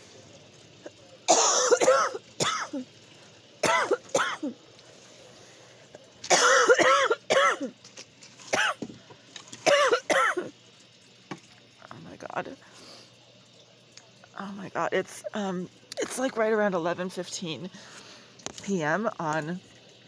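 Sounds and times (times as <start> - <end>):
woman coughing: 1.3 - 2.8, 3.6 - 4.6, 6.3 - 7.8, 8.5 - 8.8, 9.6 - 10.5.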